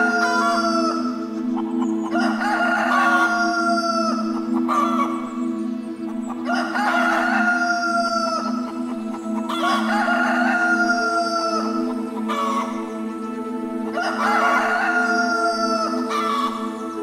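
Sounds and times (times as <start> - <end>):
background music: 0.0 - 17.0
rooster crowing: 9.5 - 11.6.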